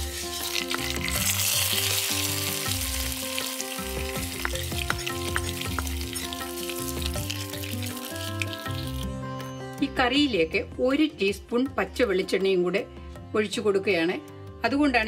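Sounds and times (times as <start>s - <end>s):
hot oil sizzling in curry: 0.0s - 9.2s.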